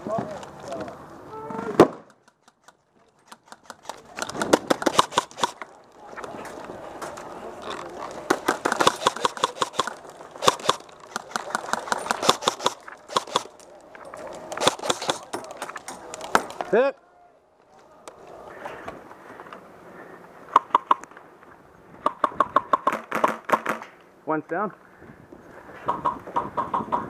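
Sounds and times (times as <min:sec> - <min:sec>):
paintball markers popping: 0:08.3 - 0:13.6.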